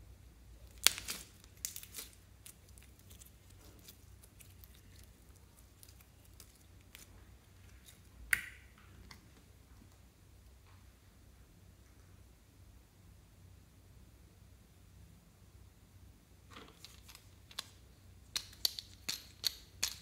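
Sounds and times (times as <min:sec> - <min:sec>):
slime clicking and crackling: 0:00.6 - 0:08.6.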